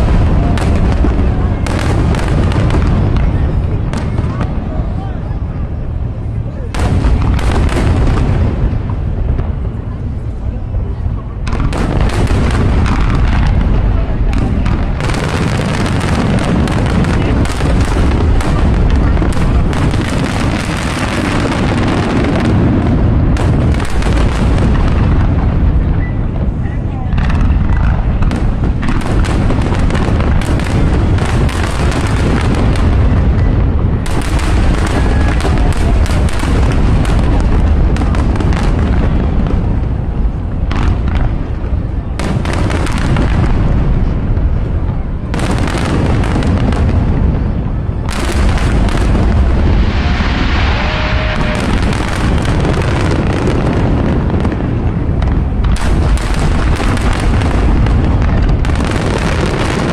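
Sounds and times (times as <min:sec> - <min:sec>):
deep rumble: 0:00.0 - 0:59.9.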